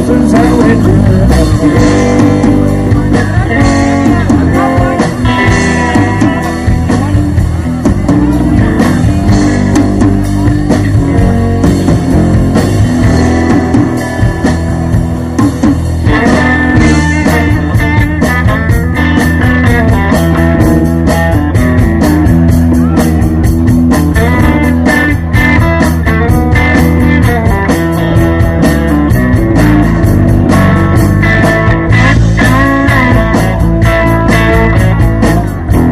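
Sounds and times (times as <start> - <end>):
bass guitar: 0.0 - 35.9
drum kit: 0.0 - 35.9
electric guitar: 0.0 - 35.9.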